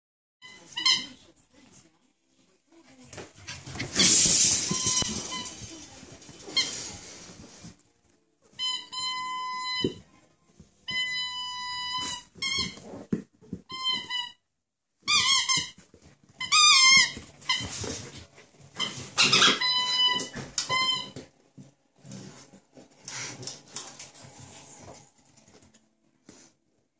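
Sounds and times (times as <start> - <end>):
puppy scuffling: 2.7 - 14.3, 15.0 - 26.8
squeaky toy squeaking: 8.6 - 10.0, 10.8 - 12.8, 13.7 - 14.4, 15.0 - 15.8, 16.4 - 17.6, 18.8 - 21.2.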